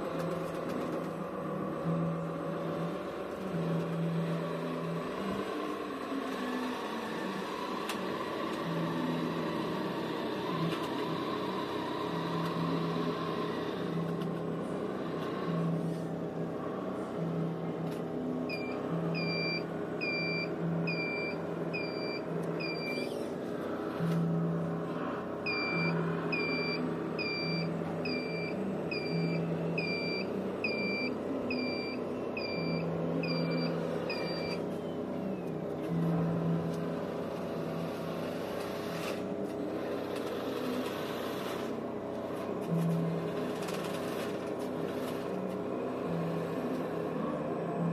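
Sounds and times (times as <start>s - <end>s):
reversing alarm beeping: 18.5s - 23.2s, 25.5s - 35.0s.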